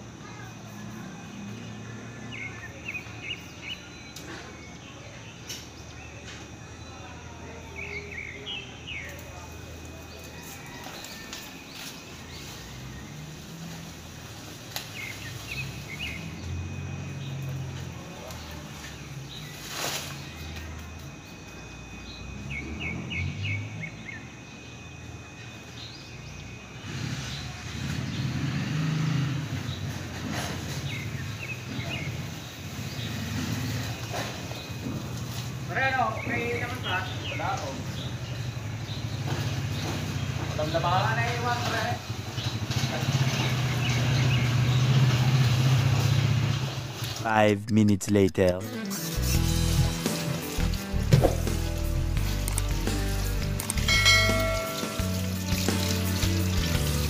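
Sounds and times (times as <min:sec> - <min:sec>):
low traffic rumble: 0:00.0 - 0:48.6
bird chirping: 0:01.4 - 0:13.5, 0:14.8 - 0:28.4, 0:30.7 - 0:41.4.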